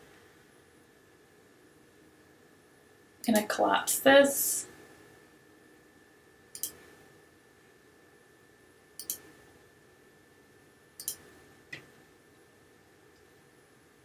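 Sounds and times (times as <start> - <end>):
computer mouse button clicks: 9.0 - 9.2.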